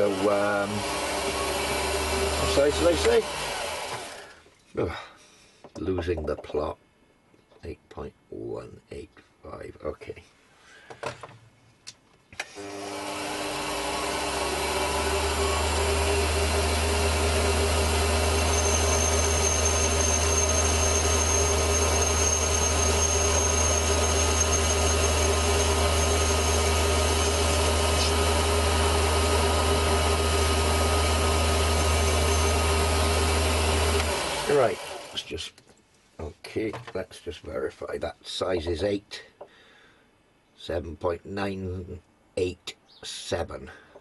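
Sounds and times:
lathe motor humming: 0:00.0 - 0:04.2, 0:12.6 - 0:35.2.

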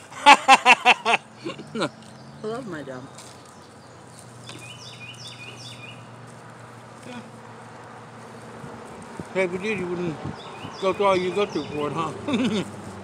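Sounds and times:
highway traffic drone: 0:00.0 - 0:13.0
bird chirping: 0:01.2 - 0:06.2, 0:08.2 - 0:12.2.

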